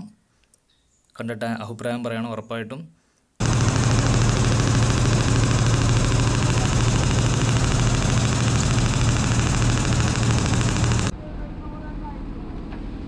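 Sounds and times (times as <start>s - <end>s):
boat diesel engine running: 3.4s - 11.1s.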